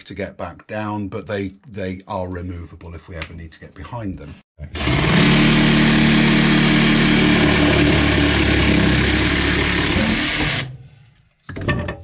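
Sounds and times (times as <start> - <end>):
jigsaw cutting wood: 4.7 - 10.7.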